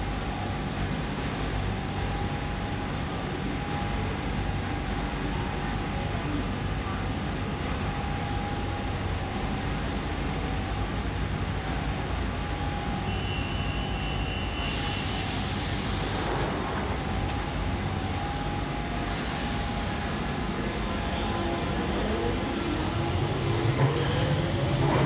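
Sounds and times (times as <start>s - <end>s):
train equipment low rumble: 0.0s - 25.0s
air hiss: 14.6s - 16.6s, 19.0s - 20.4s.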